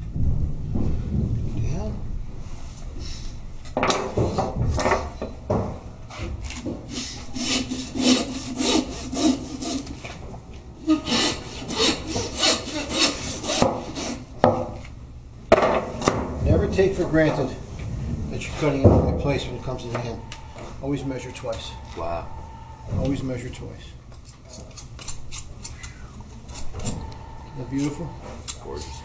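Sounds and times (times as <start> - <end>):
saw rasping through bone: 6.9 - 10.0, 10.9 - 14.2, 24.2 - 29.0.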